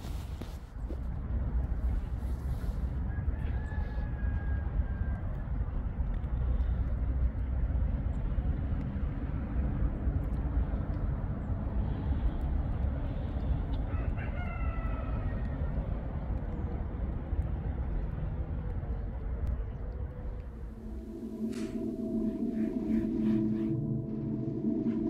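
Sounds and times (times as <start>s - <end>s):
steady low rumble: 0.0s - 25.0s
rooster crowing: 3.1s - 5.2s, 13.8s - 15.8s.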